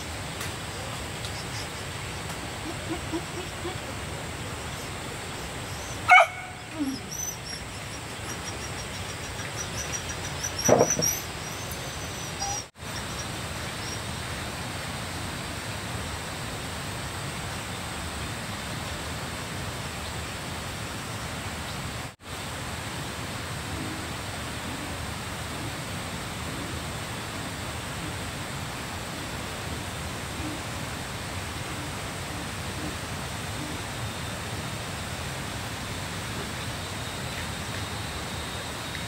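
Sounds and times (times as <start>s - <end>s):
background hiss: 0.0s - 39.0s
dog barking: 6.1s - 7.0s.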